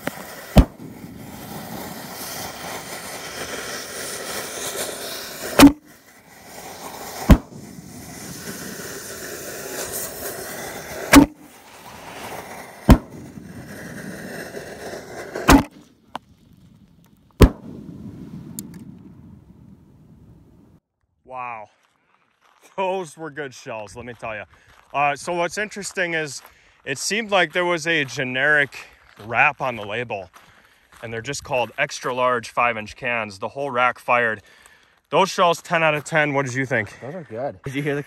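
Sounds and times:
firework booms: 0:00.0 - 0:14.7, 0:15.3 - 0:15.8, 0:17.4 - 0:20.5.

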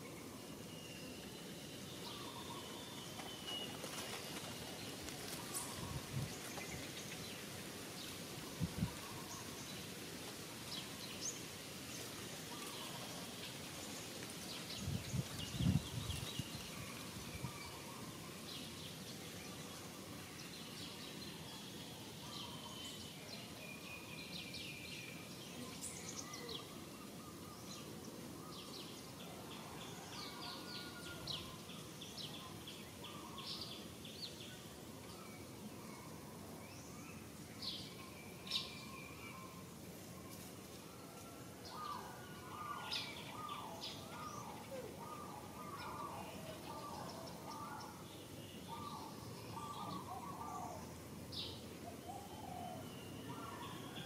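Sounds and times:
birds chirping: 0:41.7 - 0:54.0.

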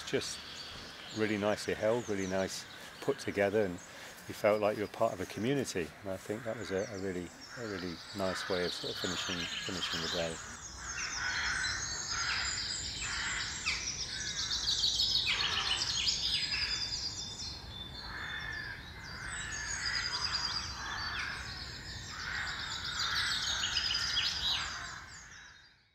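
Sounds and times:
birds singing and calling: 0:00.0 - 0:25.9
harsh caw-like bird calls: 0:05.7 - 0:16.9, 0:18.0 - 0:25.8.

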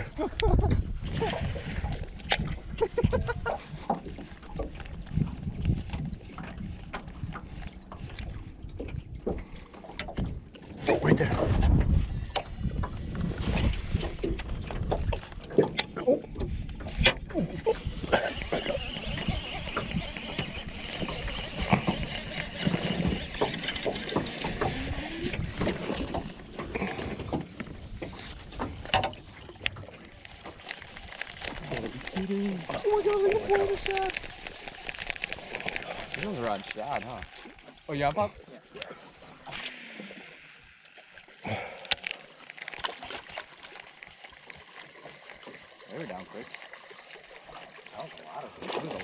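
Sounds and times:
wind rumbling on microphone: 0:00.0 - 0:27.0.

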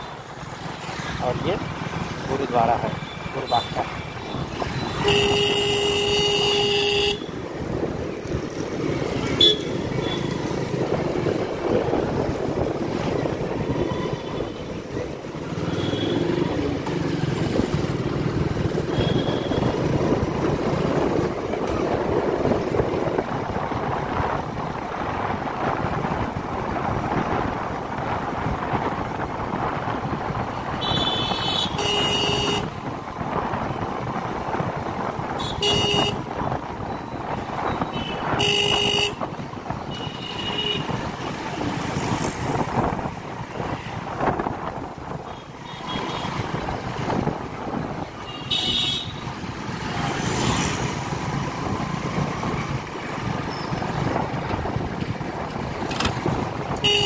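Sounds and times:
vehicle horn: 0:04.9 - 0:07.3, 0:09.4 - 0:10.3, 0:30.8 - 0:32.7, 0:35.4 - 0:36.2, 0:37.9 - 0:39.2, 0:48.3 - 0:49.2
wind on microphone: 0:07.2 - 0:15.2, 0:17.6 - 0:48.3, 0:49.2 - 0:57.0.

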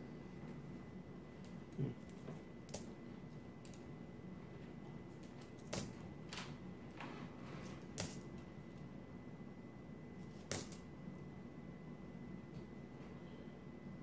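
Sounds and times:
coins clicking together: 0:08.0 - 0:08.3, 0:10.3 - 0:10.8.

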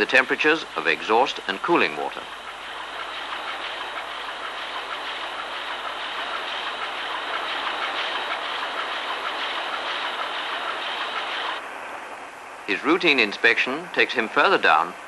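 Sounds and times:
large diesel engine running: 0:00.0 - 0:11.6.

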